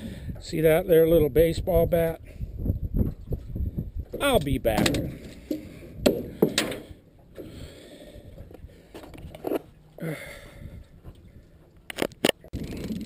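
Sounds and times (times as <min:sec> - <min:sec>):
thumps and scrapes on metal hull: 0:03.0 - 0:07.6
sharp knocks on metal hull: 0:06.0 - 0:06.9.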